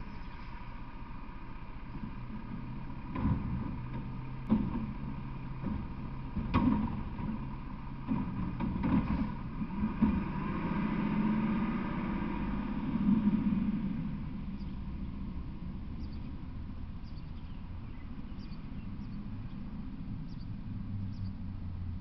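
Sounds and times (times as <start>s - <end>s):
garbage truck engine running: 0.0s - 22.0s
truck body clanking: 2.5s - 10.6s.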